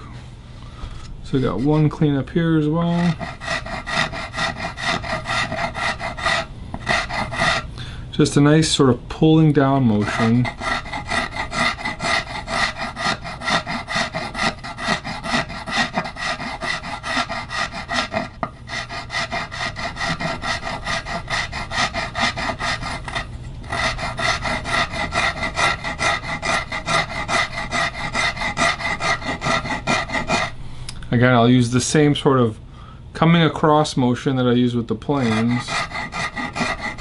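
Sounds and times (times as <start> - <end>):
file rasping on wood: 2.8 - 7.7, 10.0 - 30.6, 35.1 - 37.0.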